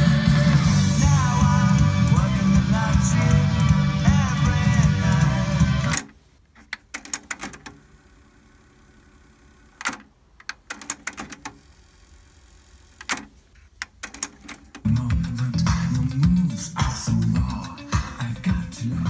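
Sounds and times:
music from cassette deck: 0.0s - 19.0s
cassette deck keys clicking: 5.8s - 7.8s, 9.8s - 11.6s, 13.0s - 14.9s.

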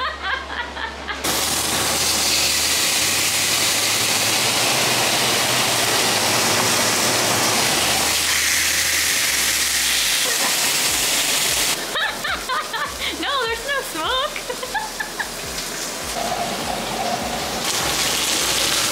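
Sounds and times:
steak sizzling in a pan: 1.3s - 13.0s, 13.6s - 18.9s.

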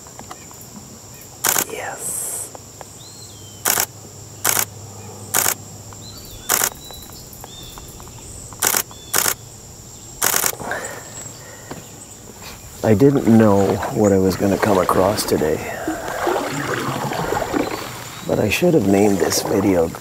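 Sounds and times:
high insect drone: 0.0s - 20.0s
camera shutter clicks: 1.4s - 1.7s, 3.6s - 3.9s, 4.5s - 4.7s, 5.4s - 5.6s, 6.5s - 6.8s, 8.6s - 9.4s, 10.2s - 10.6s
faint bird chirps: 4.4s - 18.5s.

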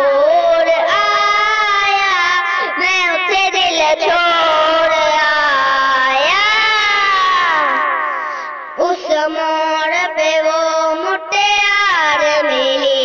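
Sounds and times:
child-like voice singing: 0.0s - 8.1s, 8.8s - 13.0s.

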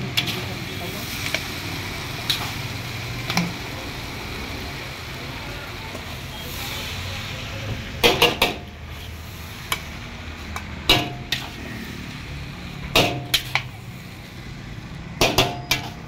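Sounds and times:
ladle clanking against wok: 0.1s - 0.4s, 10.5s - 11.6s, 12.9s - 13.7s, 15.2s - 16.0s.

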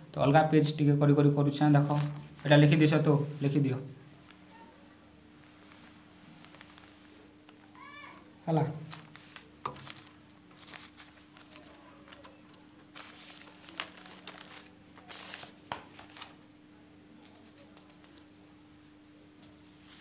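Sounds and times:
faint steady hum: 0.0s - 20.0s
paper rustling and crinkling: 1.8s - 3.0s, 5.4s - 7.3s, 8.8s - 16.4s.

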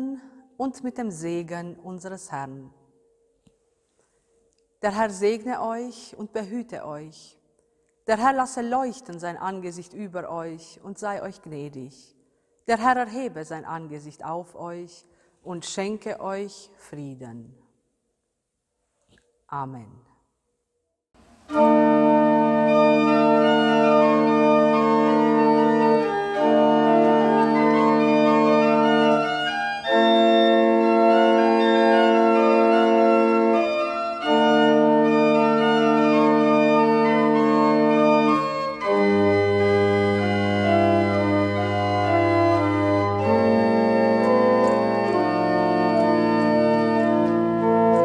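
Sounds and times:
pipe organ chords: 21.4s - 48.0s
deep organ pedal notes: 21.5s - 48.0s.

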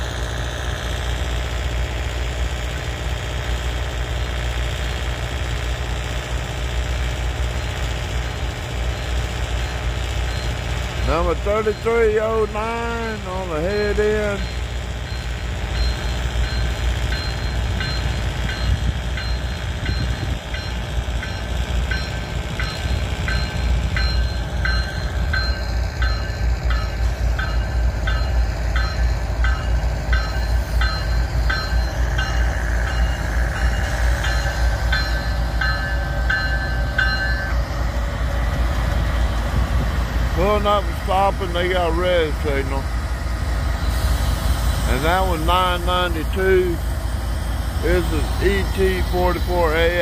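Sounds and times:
freight train rolling past: 0.0s - 50.0s
low diesel and rail rumble: 0.0s - 50.0s
bell ringing: 10.4s - 37.6s.

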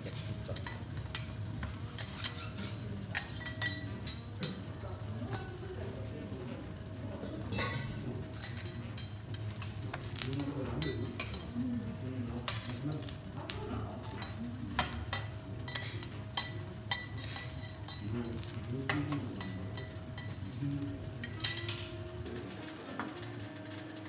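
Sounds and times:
faint sizzle: 0.0s - 24.0s
metal spatulas clinking on griddle: 0.1s - 5.6s, 7.2s - 11.6s, 12.4s - 13.2s, 14.0s - 22.0s.

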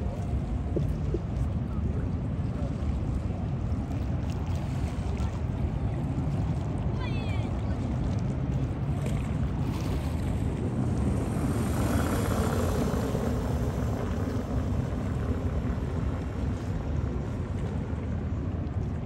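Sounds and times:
distant engines rumbling: 8.6s - 19.0s.

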